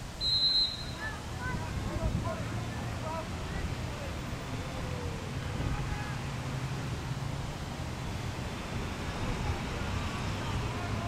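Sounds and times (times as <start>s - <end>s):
distant people calling out: 0.2s - 6.4s.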